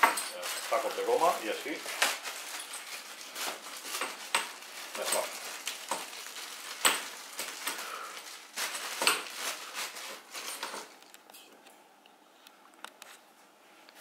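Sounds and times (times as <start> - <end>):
rustling wrapping: 0.0 - 11.5.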